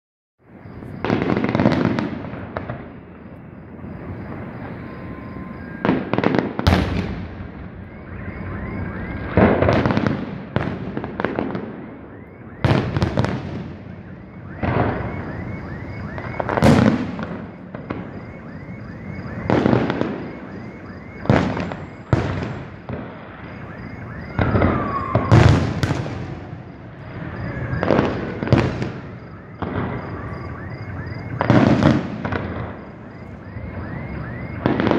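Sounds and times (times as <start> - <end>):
fireworks booming: 0.5 - 34.9
fireworks crackling: 0.5 - 34.9.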